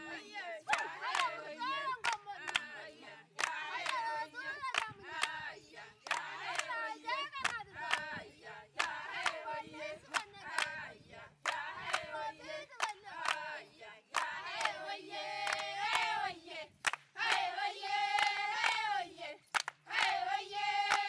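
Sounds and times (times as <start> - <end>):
women singing together: 0.0 - 21.0
hand claps: 0.7 - 1.4, 2.0 - 2.7, 3.4 - 5.4, 6.0 - 6.8, 7.4 - 8.1, 8.8 - 9.4, 11.4 - 12.1, 12.8 - 13.5, 14.1 - 14.8, 15.4 - 16.2, 16.8 - 17.5, 18.1 - 18.9, 19.5 - 20.2.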